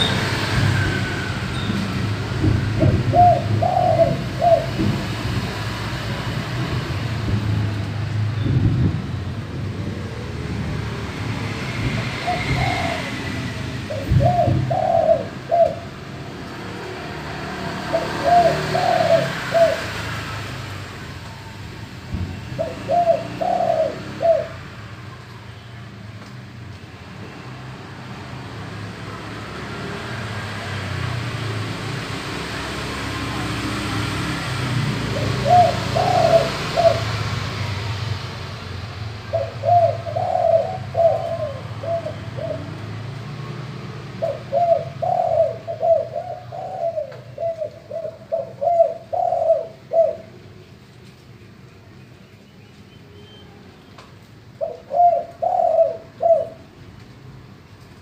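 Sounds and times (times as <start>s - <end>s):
dove cooing: 2.8s - 4.8s, 12.2s - 16.0s, 17.8s - 20.0s, 22.5s - 24.6s, 34.9s - 37.4s, 39.3s - 43.0s, 44.2s - 50.4s, 54.6s - 56.8s.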